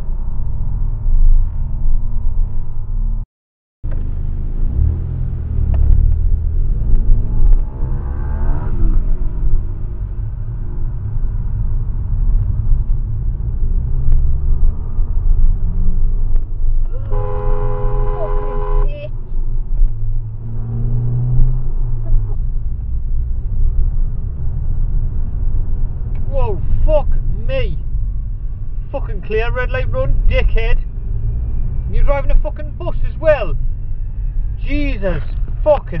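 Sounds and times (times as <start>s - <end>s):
car road and engine rumble: 0.0s - 3.2s, 3.8s - 36.0s
car horn: 16.9s - 19.2s.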